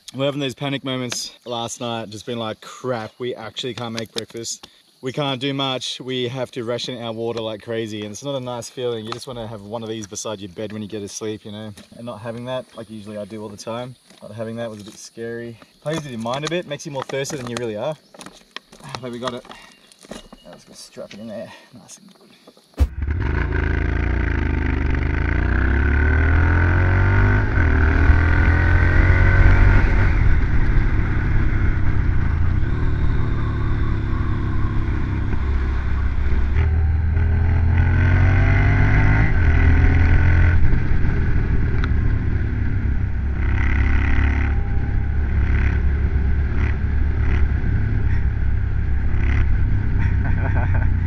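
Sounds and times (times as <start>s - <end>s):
motorcycle accelerating through gears: 22.8s - 51.0s.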